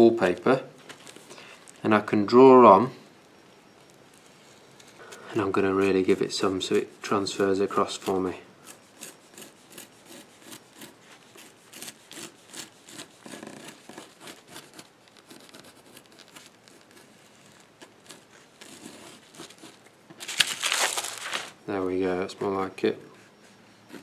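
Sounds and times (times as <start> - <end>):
pencil scratching on paper: 5.4 - 19.8
paper rustling: 14.3 - 21.6.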